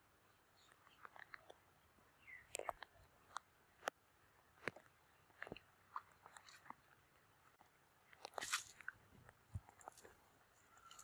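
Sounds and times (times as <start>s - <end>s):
wet crackles of net in mud: 8.2s - 9.0s.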